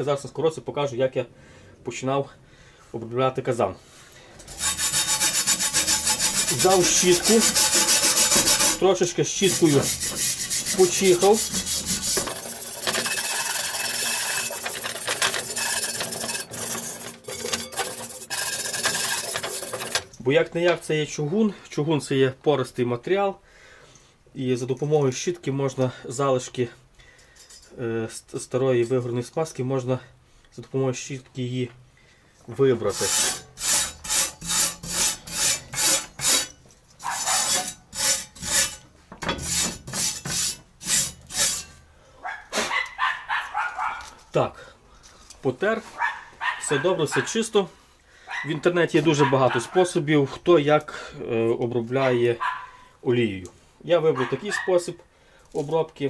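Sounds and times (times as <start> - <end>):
brush scrubbing cast iron: 4.4 - 20.1, 32.7 - 41.8.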